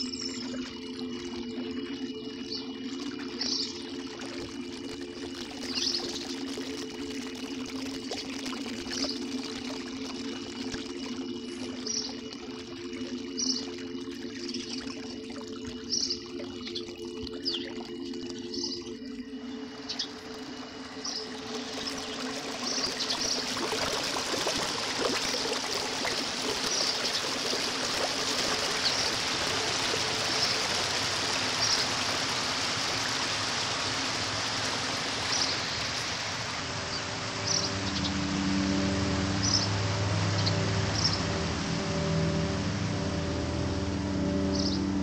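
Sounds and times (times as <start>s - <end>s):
ambient drone: 0.0s - 45.0s
stream running water: 0.0s - 45.0s.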